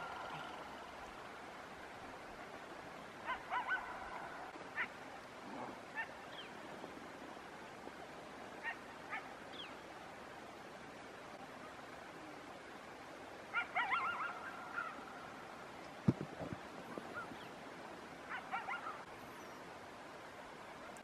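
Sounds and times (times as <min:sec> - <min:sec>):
steady background hiss: 0:00.0 - 0:21.0
distant canid yelping barks: 0:03.2 - 0:06.5, 0:08.6 - 0:09.3, 0:13.5 - 0:15.2, 0:18.3 - 0:19.1.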